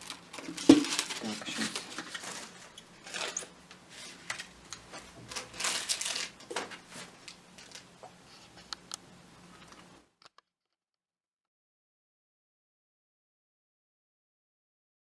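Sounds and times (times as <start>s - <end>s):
crepe paper rustling: 0.0s - 8.7s.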